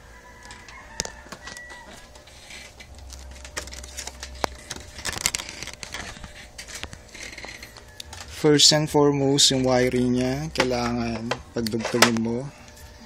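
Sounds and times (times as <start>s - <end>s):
faint steady hum: 0.0s - 13.0s
handling clicks and scrapes: 0.6s - 8.4s.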